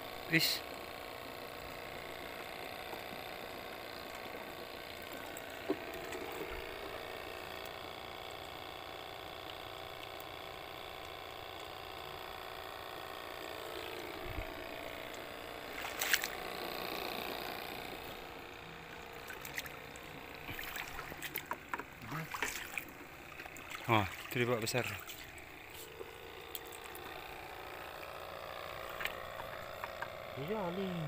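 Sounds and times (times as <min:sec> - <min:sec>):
air pump buzzing: 0:00.0 - 0:31.0.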